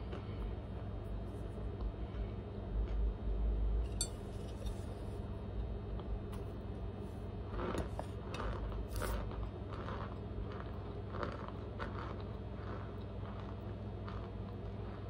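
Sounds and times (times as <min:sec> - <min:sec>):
chewing crunchy food: 0:07.1 - 0:15.0.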